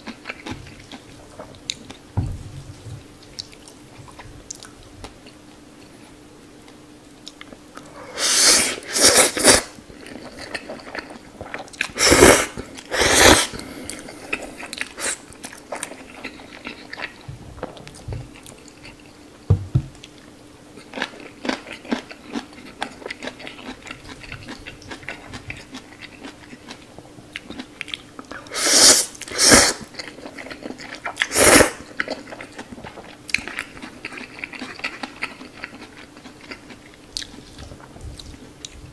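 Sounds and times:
wet chewing and crunching: 0.0 - 2.0, 9.8 - 12.0, 12.6 - 19.3, 20.0 - 28.5, 29.2 - 38.9
noodle slurping: 8.1 - 9.8, 11.9 - 13.6, 28.5 - 29.9, 31.2 - 31.8.

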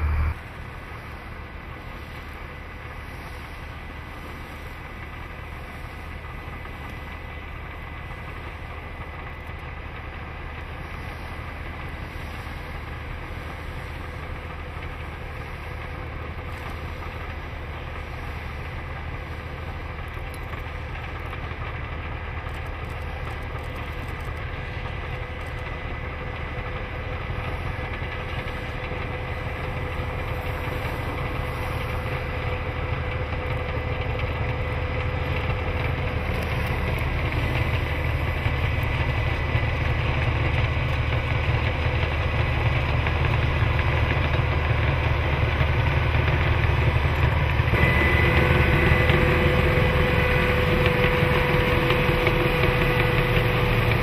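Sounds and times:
thin steady hum: 0.0 - 6.6, 47.6 - 54.0
snowplow engine and blower rumble: 0.0 - 54.0.

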